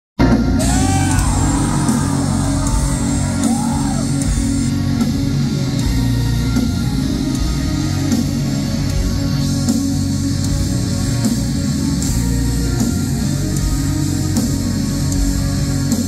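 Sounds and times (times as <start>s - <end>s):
metal band playing live: 0.2s - 16.0s.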